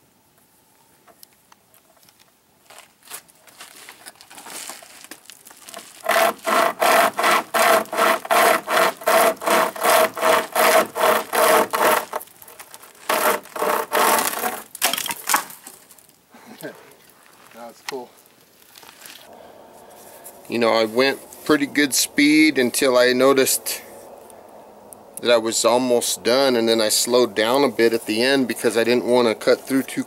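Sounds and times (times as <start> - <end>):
chainsaw chain rasping through log: 5.7 - 14.8.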